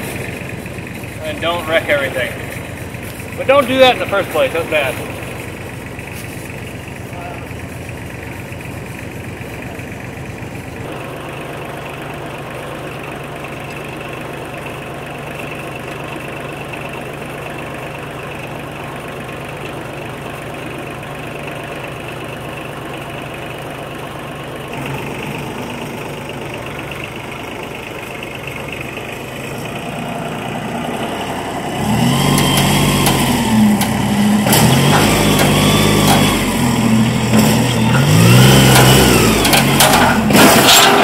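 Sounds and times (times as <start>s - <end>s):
engine idling: 0.0s - 41.0s.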